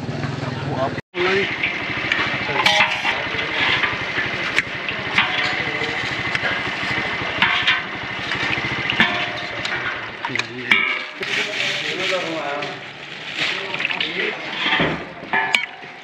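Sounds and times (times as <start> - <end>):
small engine running: 0.0 - 10.6.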